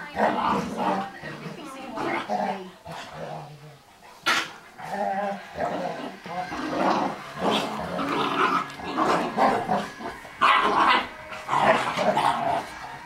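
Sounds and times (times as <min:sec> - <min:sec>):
dogs growling: 0:00.0 - 0:13.0
dogs barking: 0:06.8 - 0:13.0.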